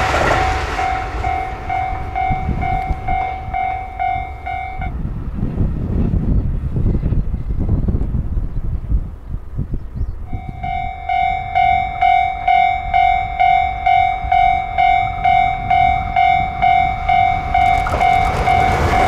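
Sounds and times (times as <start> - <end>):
approaching train rushing: 0.0 - 6.2, 10.2 - 19.0
level crossing bell ringing: 1.3 - 4.9, 10.4 - 19.0.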